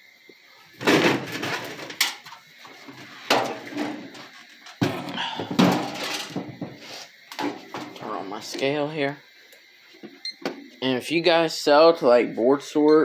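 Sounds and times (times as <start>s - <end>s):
objects knocking and clattering: 0.8s - 8.0s.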